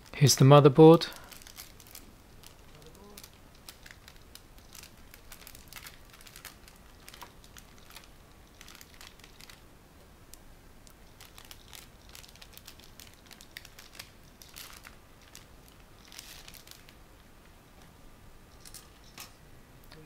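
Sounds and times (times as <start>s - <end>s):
foil bags crinkling: 1.0s - 9.6s, 10.8s - 17.0s.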